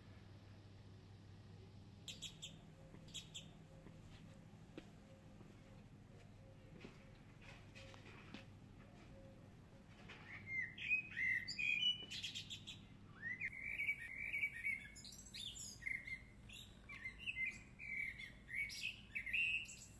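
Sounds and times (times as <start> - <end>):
small songbird chirping: 2.0 - 4.2, 10.2 - 19.9.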